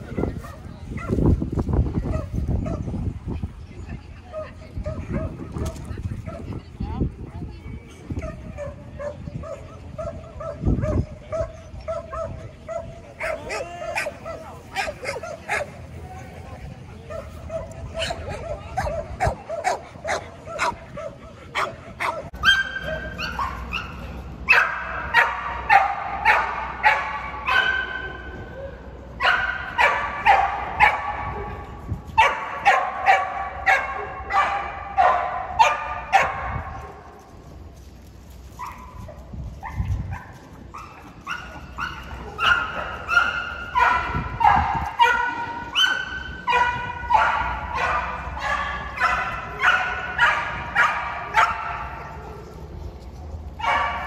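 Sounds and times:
dogs barking: 8.2s - 15.9s, 17.1s - 28.2s, 29.2s - 31.6s, 32.2s - 37.1s, 38.6s - 52.5s, 53.6s - 54.0s.

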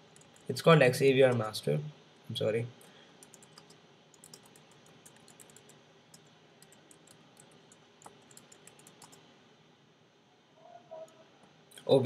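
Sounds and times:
faint keyboard typing: 0.0s - 1.5s, 2.8s - 9.3s.

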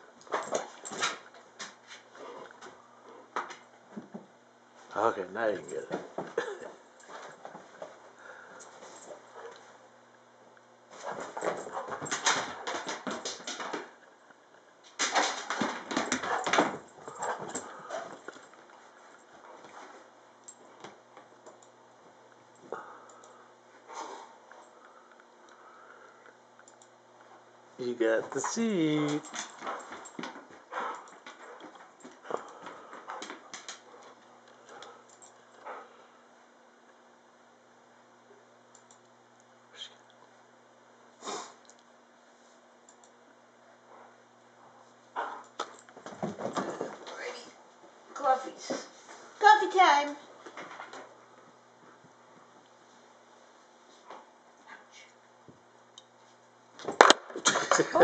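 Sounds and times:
dog paws scuffing and rustling: 10.9s - 13.9s.

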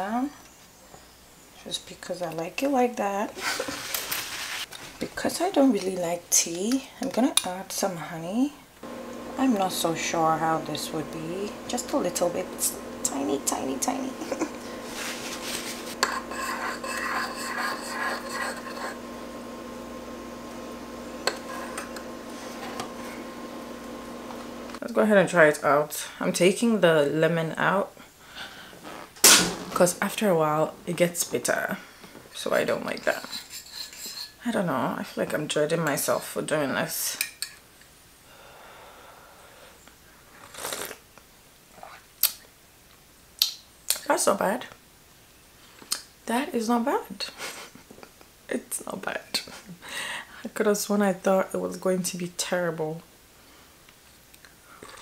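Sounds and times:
person slurping tea: 14.4s - 19.5s, 21.2s - 23.3s, 40.4s - 41.0s, 54.8s - 55.0s
spoon stirring in ceramic mug: 14.4s - 19.7s, 20.7s - 23.1s.

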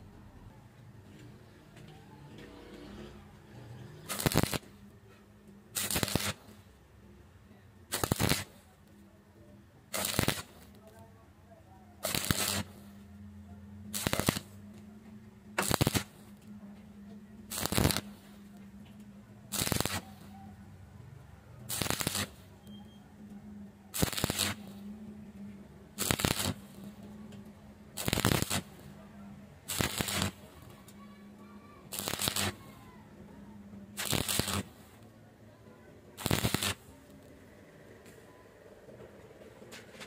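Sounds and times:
welding arc crackling: 4.0s - 4.8s, 5.8s - 6.6s, 7.9s - 8.6s, 9.9s - 10.8s, 12.0s - 13.0s, 13.9s - 14.6s, 15.6s - 16.5s, 17.4s - 18.4s, 19.5s - 20.3s, 21.7s - 22.5s, 23.9s - 24.9s, 26.0s - 27.1s, 27.9s - 29.0s, 29.7s - 30.8s, 31.9s - 32.8s, 34.0s - 35.0s, 36.2s - 36.9s
steady low hum: 8.6s - 40.0s.

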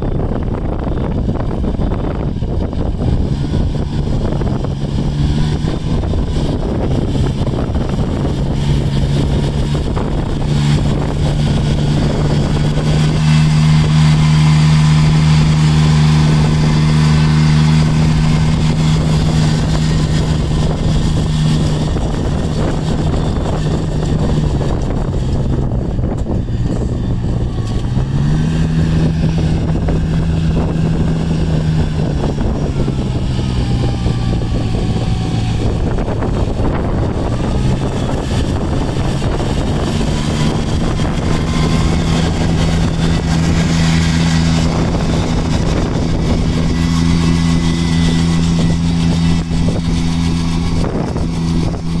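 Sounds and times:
transplanter engine running: 0.0s - 52.0s.

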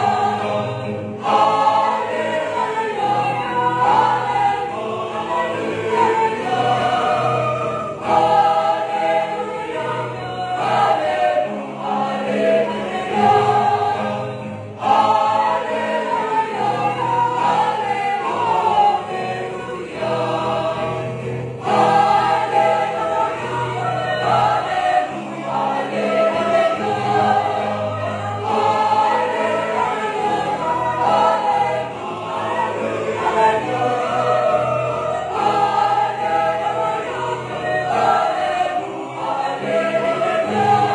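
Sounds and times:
church choir singing: 0.0s - 40.9s.

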